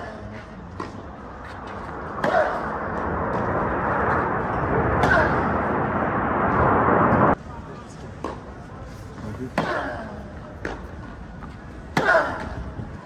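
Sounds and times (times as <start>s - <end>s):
murmur of crowd chatter: 7.4s - 13.0s.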